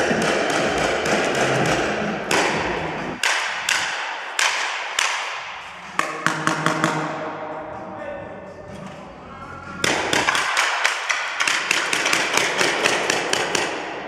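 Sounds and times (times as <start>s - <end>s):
paintball markers firing: 9.8s - 14.0s.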